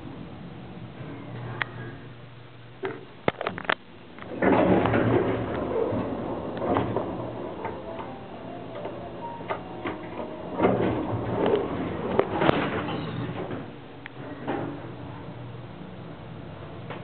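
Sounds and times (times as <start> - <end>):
low steady hum: 0.0 - 17.0
elevator doors sliding: 4.2 - 15.5.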